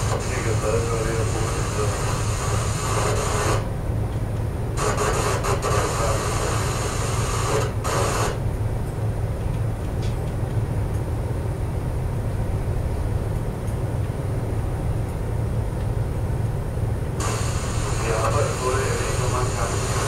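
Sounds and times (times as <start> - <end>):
low machinery rumble: 0.0 - 20.0
high hiss: 17.2 - 20.0.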